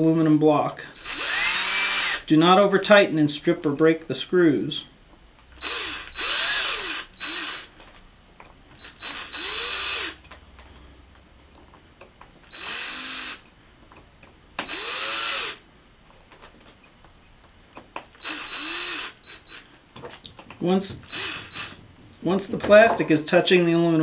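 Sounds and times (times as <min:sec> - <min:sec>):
cordless drill driving screws: 0:01.0 - 0:02.3, 0:05.6 - 0:07.9, 0:08.8 - 0:10.4, 0:12.4 - 0:13.5, 0:14.6 - 0:15.6, 0:18.1 - 0:19.7, 0:20.8 - 0:21.8.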